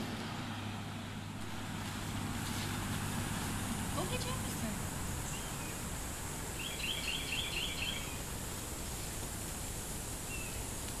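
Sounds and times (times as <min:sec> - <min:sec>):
outdoor background noise: 0:00.0 - 0:11.0
small bird chirping: 0:05.2 - 0:05.9, 0:06.6 - 0:08.2, 0:10.3 - 0:10.7.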